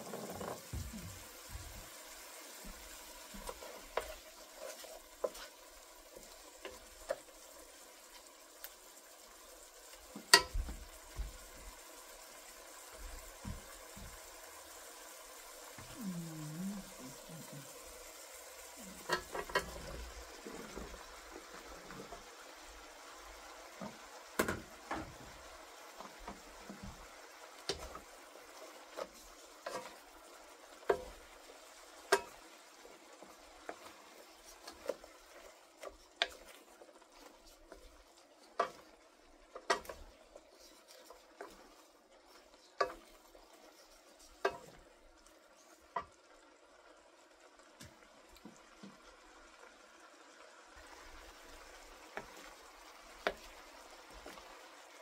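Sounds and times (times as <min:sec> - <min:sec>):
wooden utensil scraping a wok: 0:00.0 - 0:09.0, 0:16.8 - 0:22.4, 0:23.1 - 0:46.2, 0:50.8 - 0:54.6
food sizzling in a pan: 0:00.0 - 0:55.0.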